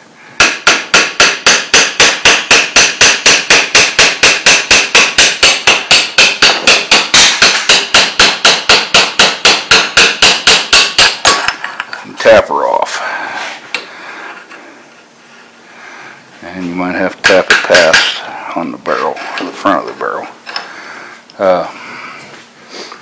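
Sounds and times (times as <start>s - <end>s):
hammer striking metal: 0.4s - 11.6s, 17.2s - 18.2s.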